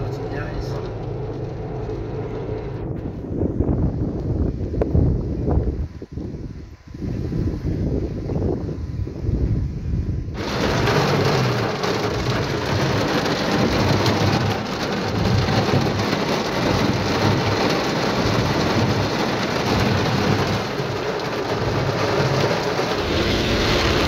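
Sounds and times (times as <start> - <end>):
heavy rain drumming on car roof: 0.0 - 2.8, 10.3 - 24.0.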